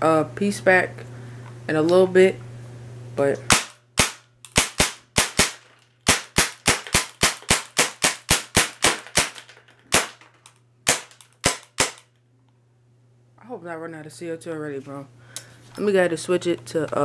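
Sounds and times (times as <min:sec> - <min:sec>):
airsoft gun shots: 0:03.5 - 0:10.2, 0:10.9 - 0:12.0.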